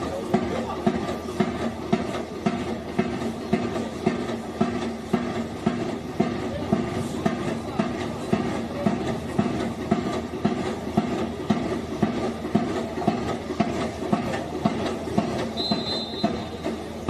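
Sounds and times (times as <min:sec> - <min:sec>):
drums beating steady rhythm: 0:00.0 - 0:17.0
referee's whistle: 0:15.6 - 0:16.6.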